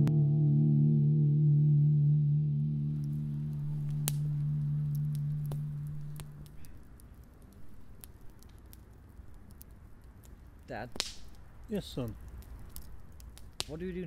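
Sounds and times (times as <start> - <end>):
low held music note: 0.0 - 6.6
campfire crackling: 2.9 - 14.0.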